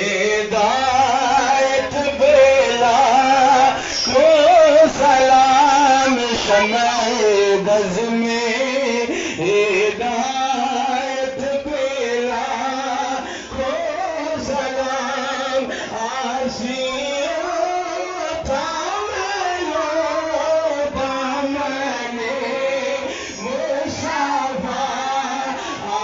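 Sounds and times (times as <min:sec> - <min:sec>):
man singing over loudspeakers: 0:00.0 - 0:26.0.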